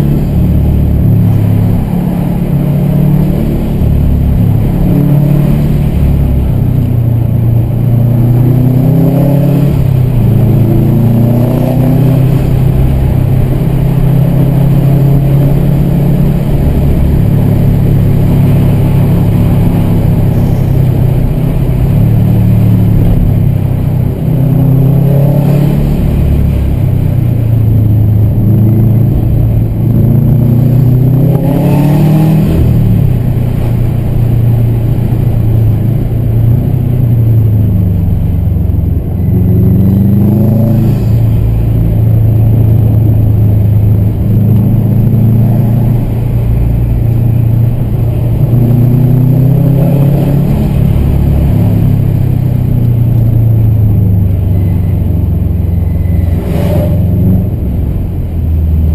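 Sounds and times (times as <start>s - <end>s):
car engine revving from cabin: 0.0s - 6.6s, 28.2s - 36.4s, 52.9s - 58.9s.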